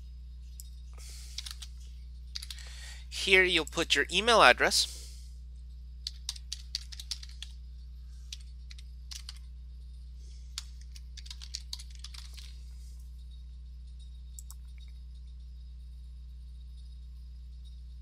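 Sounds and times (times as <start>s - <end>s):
low electrical hum: 0.0s - 18.0s
keyboard typing clicks: 1.4s - 1.7s, 2.4s - 2.6s, 6.1s - 7.5s, 8.3s - 9.4s, 10.6s - 12.5s.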